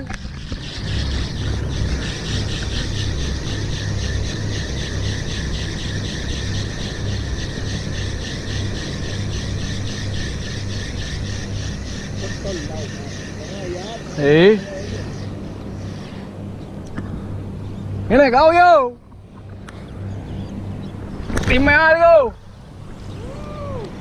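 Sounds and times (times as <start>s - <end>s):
fishing reel whirring: 0.4s - 16.2s.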